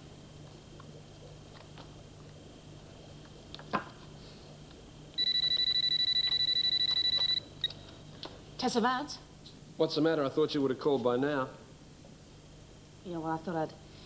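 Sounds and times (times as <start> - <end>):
telephone ringing electronically: 5.2 - 7.5.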